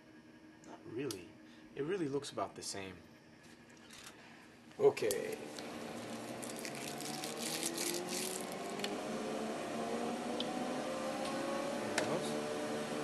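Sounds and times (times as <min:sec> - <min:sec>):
machinery hum rising in pitch: 0:05.2 - 0:13.0.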